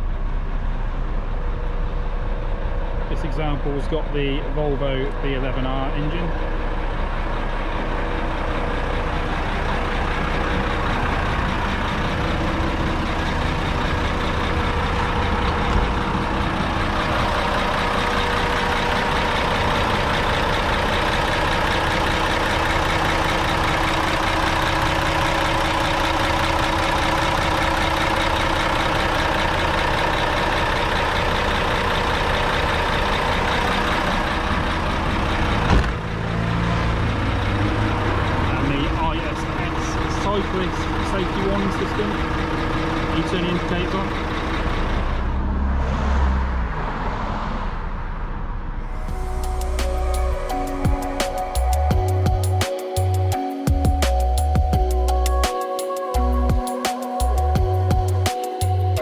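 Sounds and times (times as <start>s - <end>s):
diesel engine idling: 0.0s - 59.0s
thump: 35.7s - 36.0s.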